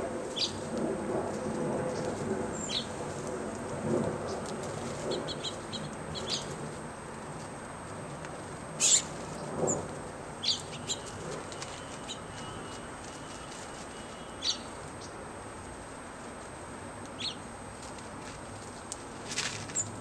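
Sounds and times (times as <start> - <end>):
small birds chirping: 0.3 - 0.7, 1.9 - 3.1, 4.2 - 6.7, 8.8 - 15.2, 17.1 - 17.5
wing flutters: 17.8 - 20.0.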